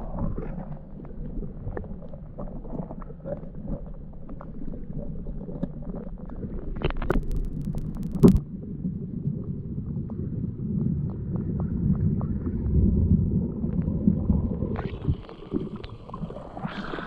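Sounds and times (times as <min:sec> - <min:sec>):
muffled underwater water rushing: 0:00.0 - 0:17.0
small clicks: 0:06.8 - 0:08.4.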